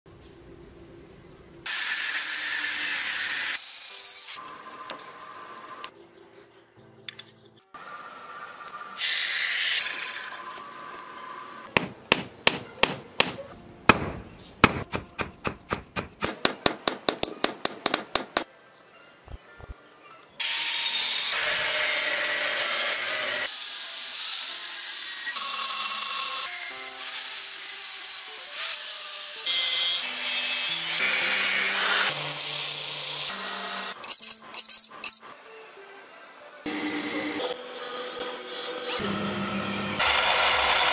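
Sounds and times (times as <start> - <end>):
hammer clanging on anvil: 11.8 - 17.6.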